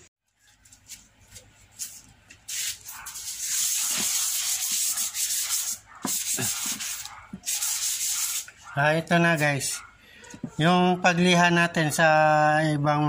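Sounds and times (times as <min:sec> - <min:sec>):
sandpaper scratching plastic: 0:00.4 - 0:08.5.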